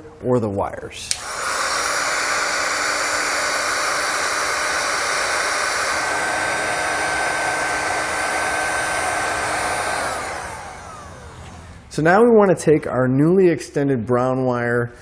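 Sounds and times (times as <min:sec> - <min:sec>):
heat gun blower whining: 0:01.1 - 0:12.0.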